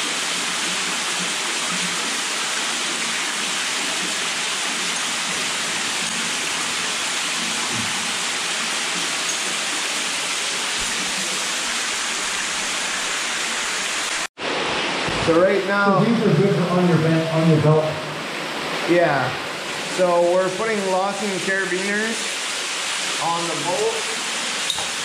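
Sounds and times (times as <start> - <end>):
water splashing down cave wall: 17.4 - 25.0.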